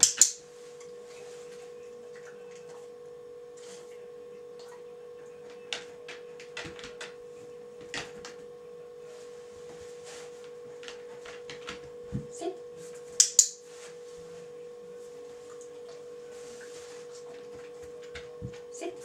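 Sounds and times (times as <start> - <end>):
steady hum: 0.0 - 19.0.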